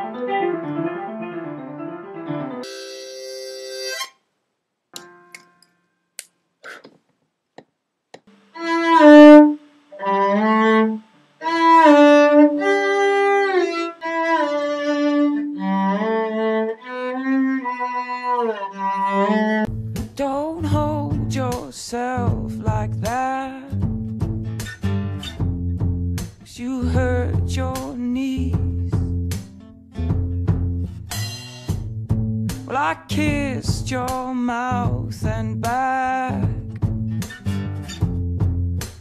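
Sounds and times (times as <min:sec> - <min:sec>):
cello bowing long notes: 0:08.5 - 0:19.7.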